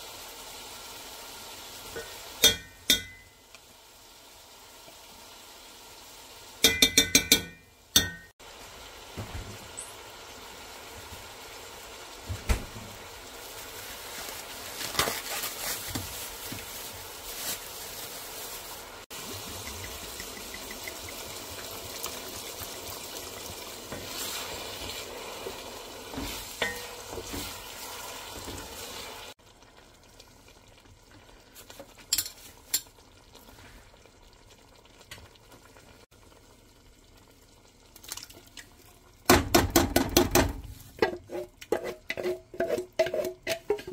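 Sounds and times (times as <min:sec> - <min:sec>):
meat sizzling in a pot: 0:00.0 - 0:43.9
wooden spoon scraping a pot: 0:40.8 - 0:43.9.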